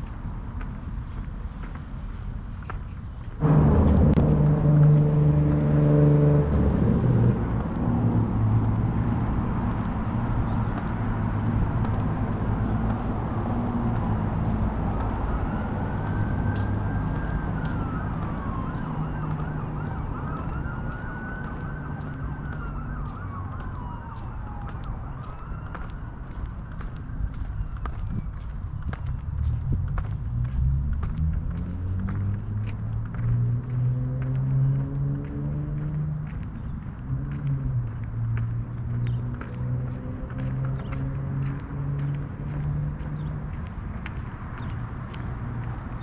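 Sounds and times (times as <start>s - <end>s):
footsteps: 0.0s - 46.0s
traffic rumble: 0.0s - 46.0s
passing vehicle engine: 3.3s - 46.0s
faint siren wailing: 3.4s - 29.4s.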